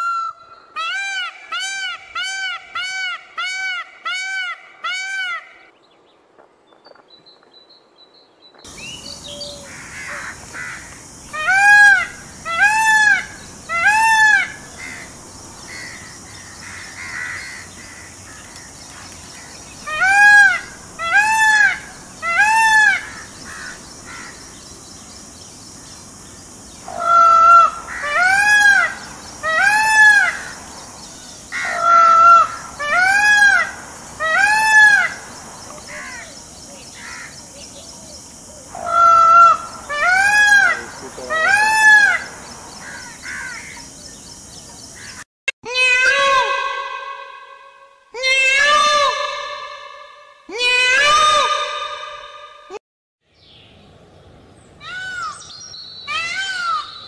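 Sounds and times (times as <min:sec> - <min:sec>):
peacock wailing calls: 0:00.0 - 0:05.7, 0:09.3 - 0:24.5, 0:26.8 - 0:30.7, 0:31.4 - 0:36.4, 0:38.6 - 0:43.9, 0:45.0 - 0:52.8, 0:54.8 - 0:57.0.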